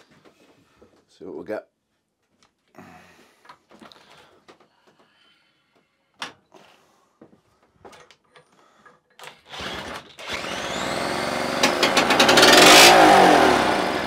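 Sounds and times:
cordless drill spinning: 0:09.2 - 0:14.0.

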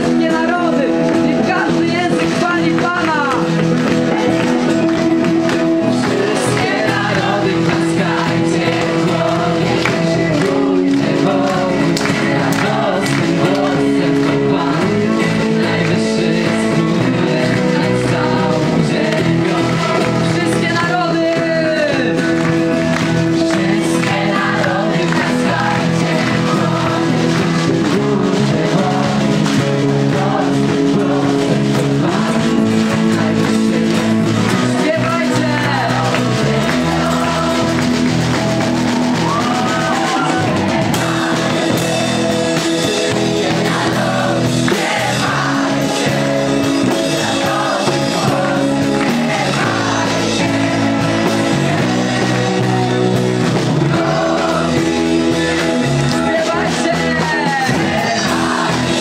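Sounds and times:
person singing: 0:00.0 - 0:38.4, 0:39.0 - 0:59.0
crowd singing along: 0:00.0 - 0:59.0
guitar accompaniment: 0:00.0 - 0:59.0.

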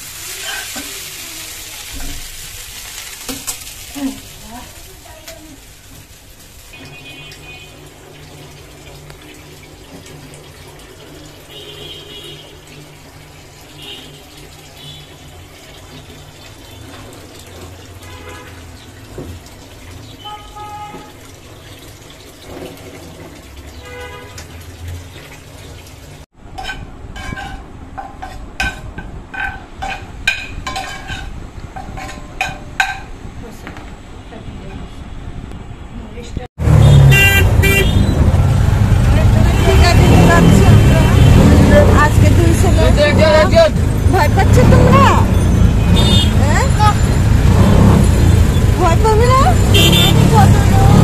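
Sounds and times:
spatula stirring noodles in pan: 0:26.5 - 0:32.2.

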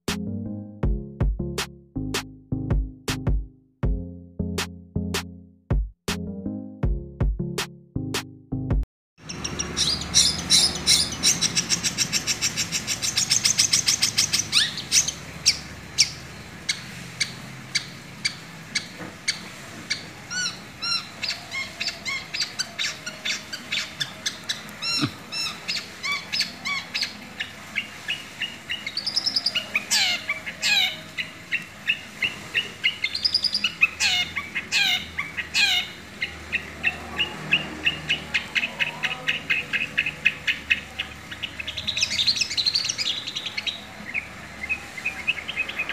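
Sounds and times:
bird singing chirps and whistles: 0:09.2 - 0:16.8, 0:19.9 - 0:35.9.

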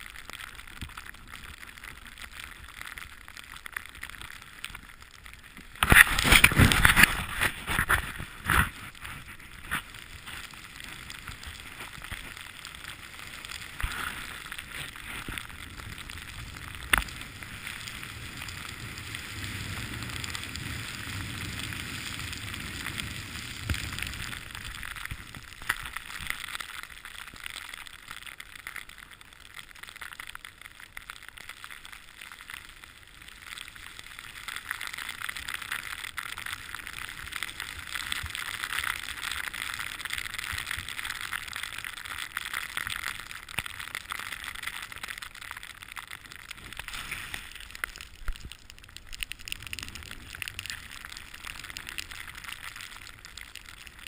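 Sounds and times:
wind rumbling on microphone: 0:05.7 - 0:26.4
snowboard hissing over snow: 0:12.9 - 0:24.2, 0:46.6 - 0:47.7.

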